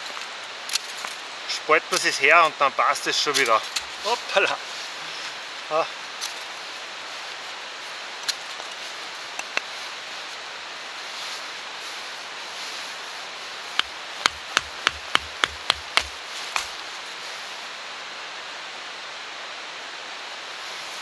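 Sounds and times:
background hiss: 0:00.0 - 0:21.0
wooden baton knocking on knife: 0:14.2 - 0:16.1.

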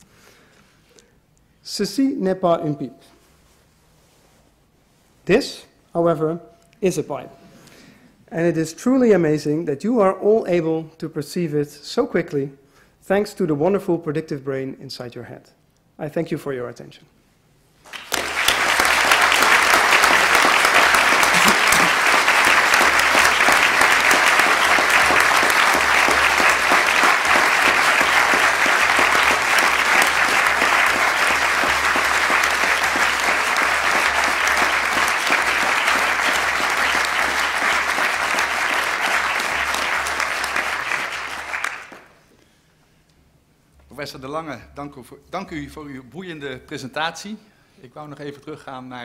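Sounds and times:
large audience applauding: 0:17.8 - 0:42.2.

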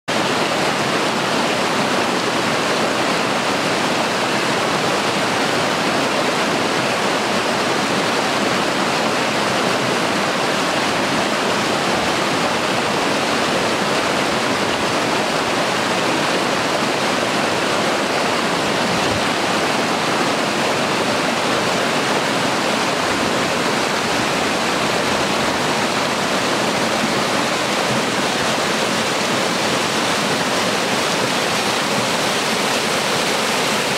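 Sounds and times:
stream rushing over rapids: 0:00.1 - 0:33.9.

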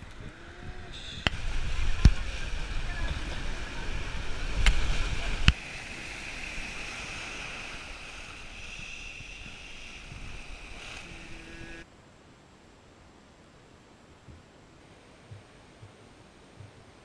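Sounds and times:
sea surf washing: 0:00.0 - 0:11.9
faint hiss: 0:00.0 - 0:17.0.

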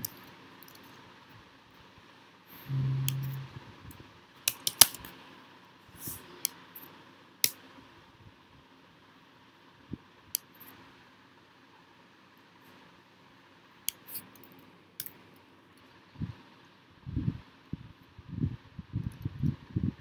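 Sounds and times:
brief low hum: 0:02.6 - 0:03.8.

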